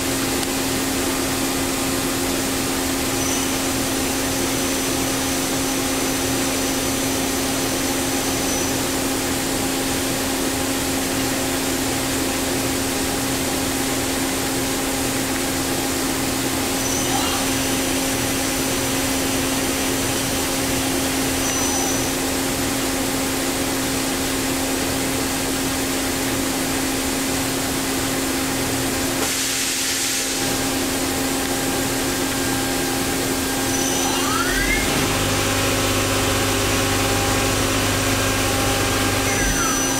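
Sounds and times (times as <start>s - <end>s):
machine hum with constant tone: 0.0s - 39.9s
hiss: 29.2s - 30.4s.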